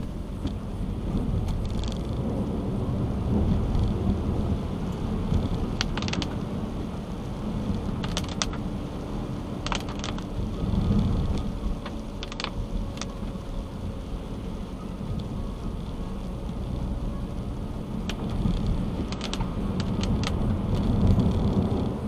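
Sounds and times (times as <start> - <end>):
car road noise on wet road: 0.0 - 22.0
sharp clicks: 5.8 - 6.4, 18.0 - 21.8.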